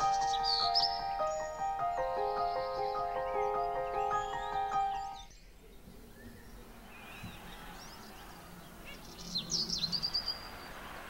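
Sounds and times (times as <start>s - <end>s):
background music: 0.0s - 5.3s
birds chirping: 0.0s - 11.0s.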